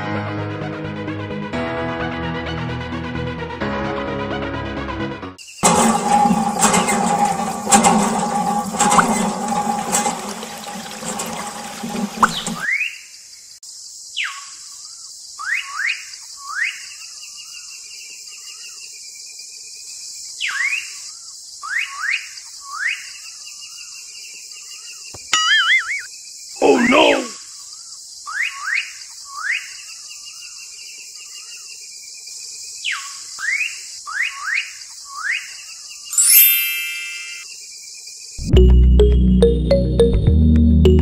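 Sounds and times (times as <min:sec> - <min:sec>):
water splashing into metal bucket: 0:05.6 - 0:12.7
short rising chirps: 0:25.2 - 0:26.1, 0:36.1 - 0:37.5.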